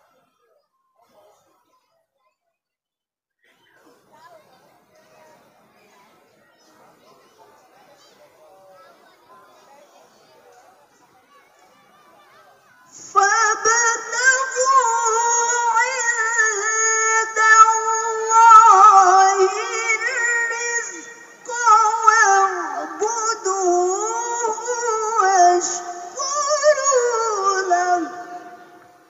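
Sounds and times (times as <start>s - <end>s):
woman reciting melodically: 12.9s - 29.0s.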